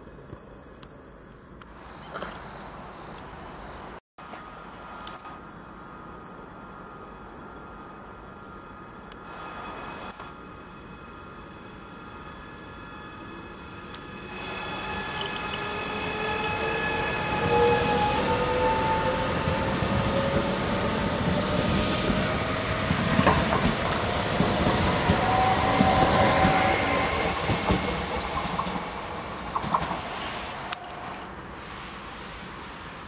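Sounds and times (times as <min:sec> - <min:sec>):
electric train drive whine: 0:04.4 - 0:33.0
train wheels rumbling: 0:12.6 - 0:32.9
wheels clacking over rail joints: 0:21.2 - 0:31.2.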